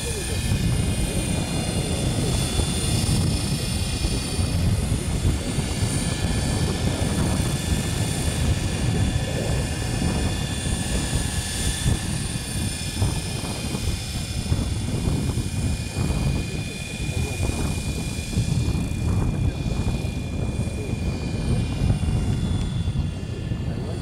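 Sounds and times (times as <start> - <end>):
model helicopter rotor whine: 0.0 - 24.0.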